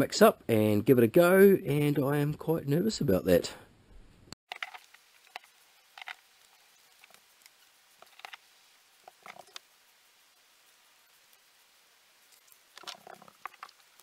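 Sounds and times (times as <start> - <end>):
brush clicking and scraping: 6.9 - 8.4, 9.0 - 9.6.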